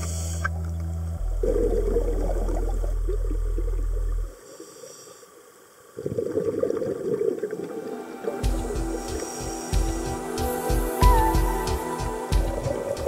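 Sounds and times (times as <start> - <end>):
deep steady held tone: 0.0 - 4.4, 7.8 - 13.0
water bubbling and crackling: 0.0 - 11.7.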